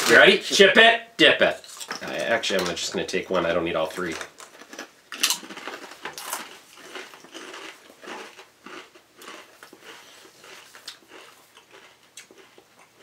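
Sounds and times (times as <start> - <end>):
potato chips being chewed: 1.6 - 2.8, 3.9 - 13.0.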